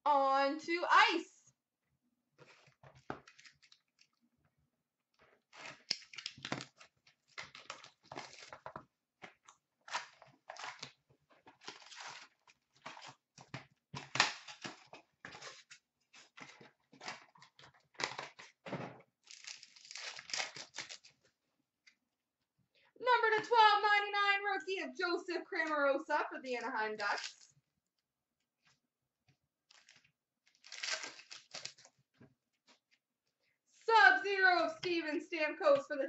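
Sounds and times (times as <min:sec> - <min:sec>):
card packs being torn open: 0:02.4 - 0:04.1, 0:05.5 - 0:08.6, 0:09.8 - 0:18.6, 0:19.2 - 0:21.2, 0:29.7 - 0:31.9
wrappers crinkling: 0:05.6 - 0:08.7, 0:09.9 - 0:13.2, 0:19.2 - 0:21.3, 0:29.7 - 0:32.0.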